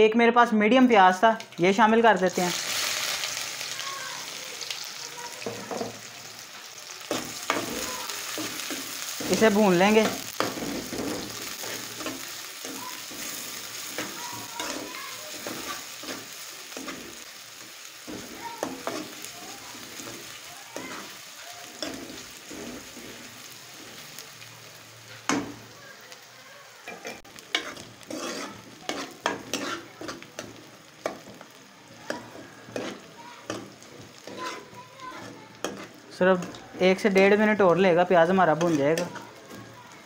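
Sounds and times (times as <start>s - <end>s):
onions sizzling in a pan: 0.0s - 40.0s
metal spoon scraping a pan: 7.0s - 17.3s, 18.0s - 24.0s, 26.8s - 31.4s, 32.1s - 39.7s.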